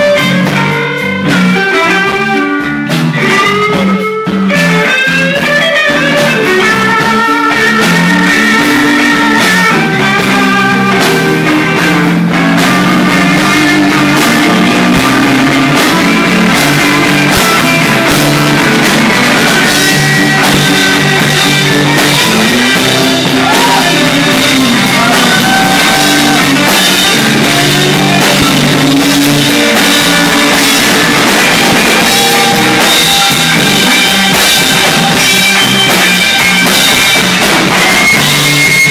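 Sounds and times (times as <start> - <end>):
blues-rock band playing: 0.0 - 38.9
electric guitar lead: 0.0 - 38.9.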